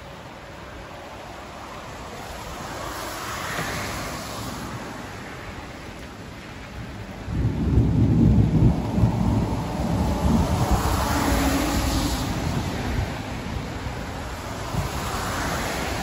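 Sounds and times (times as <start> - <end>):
rain falling: 0.0 - 16.0
thunder rumbling: 7.1 - 13.9.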